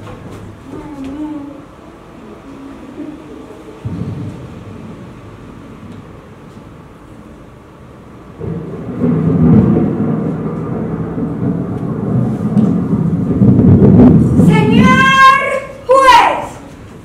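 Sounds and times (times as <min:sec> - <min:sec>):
deep rumbling sound effect: 0:02.8 - 0:06.8, 0:08.2 - 0:14.8.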